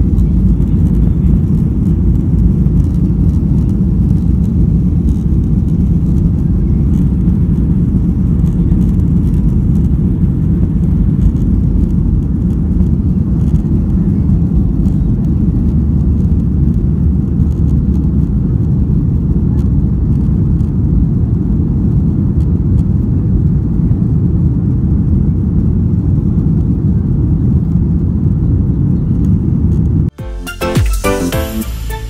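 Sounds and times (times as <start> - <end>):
jet engine cabin noise: 0.0 - 30.2
music: 30.1 - 32.0.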